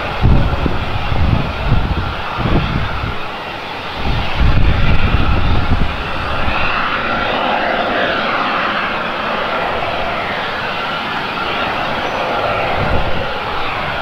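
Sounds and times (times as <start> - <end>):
jet engines running: 0.0 - 14.0
low rumble: 4.0 - 14.0.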